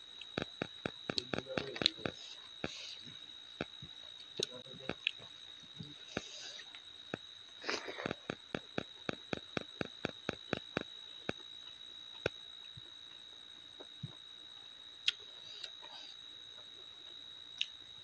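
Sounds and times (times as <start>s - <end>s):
faint high whine: 0.0s - 18.0s
small wet eating clicks: 0.2s - 2.8s, 3.6s - 5.4s, 8.0s - 13.2s.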